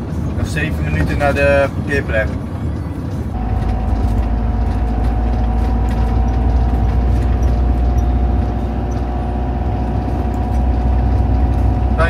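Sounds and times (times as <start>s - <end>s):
engine and road rumble: 0.0s - 12.0s
thin steady whine: 3.3s - 12.0s.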